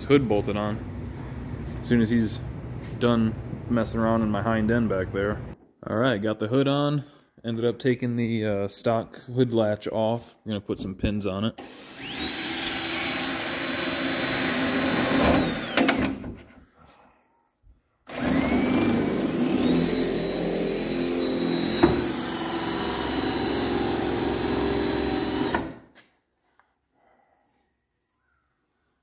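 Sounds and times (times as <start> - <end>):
cordless drill motor whine: 11.6 - 16.0, 18.1 - 25.8.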